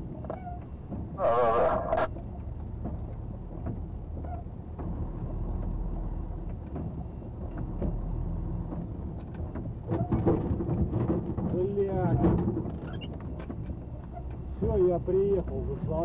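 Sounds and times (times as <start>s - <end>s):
engine and road rumble in cab: 0.0s - 16.0s
loud irregular noise: 1.1s - 2.1s.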